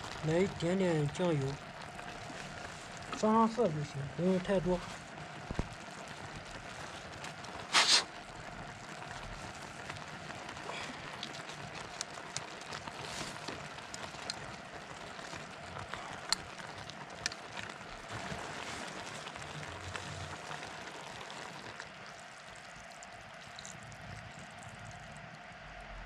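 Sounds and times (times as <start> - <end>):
meat sizzling in a pot: 0.0 - 25.4.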